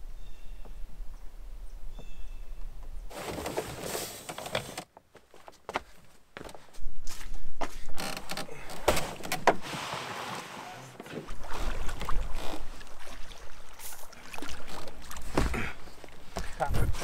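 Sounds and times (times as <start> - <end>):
footsteps on trail: 5.0 - 8.2
paddle strokes in water: 9.0 - 17.0.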